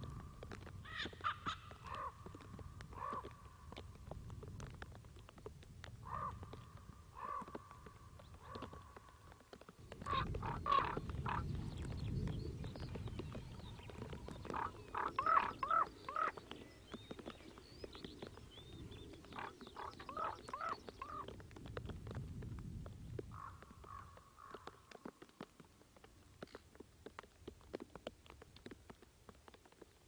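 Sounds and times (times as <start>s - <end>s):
ravens calling: 0.8s - 3.4s, 6.0s - 7.8s, 10.0s - 11.6s, 14.3s - 16.7s, 19.0s - 21.3s.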